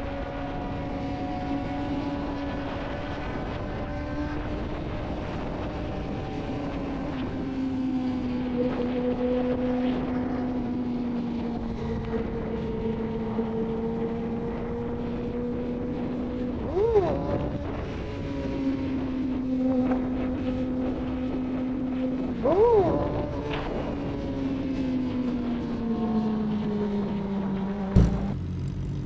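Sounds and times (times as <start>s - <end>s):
motorcycle engine cruising: 0.0s - 29.0s
wind noise on microphone: 0.0s - 29.0s.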